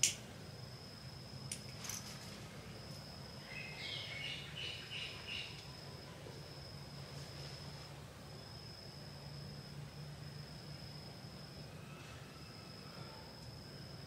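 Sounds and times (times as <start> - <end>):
insects trilling: 0.0 - 14.0
bird chirping: 3.4 - 5.7.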